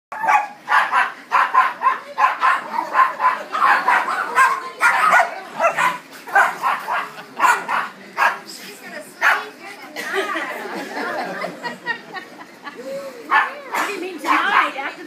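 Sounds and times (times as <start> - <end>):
small dogs barking and yipping: 0.1 - 8.5, 9.2 - 9.6, 13.3 - 14.0.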